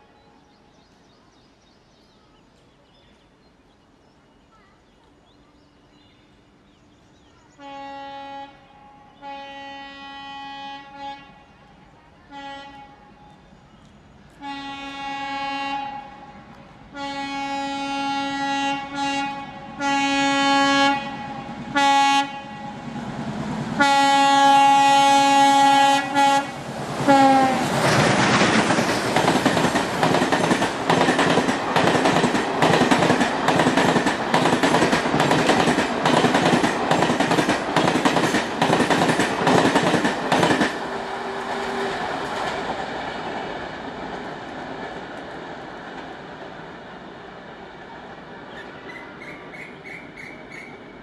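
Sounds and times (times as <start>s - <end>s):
locomotive horn blasts: 7.6s - 11.6s, 12.3s - 13.2s, 14.4s - 16.3s, 16.9s - 22.9s, 23.8s - 27.7s
train wheels clattering over rail joints: 27.7s - 40.8s.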